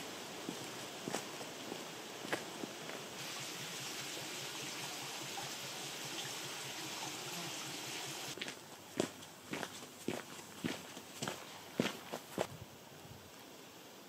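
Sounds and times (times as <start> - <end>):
stream running over stones: 0.0 - 12.4
footsteps on gravel: 0.4 - 3.1, 8.4 - 12.5.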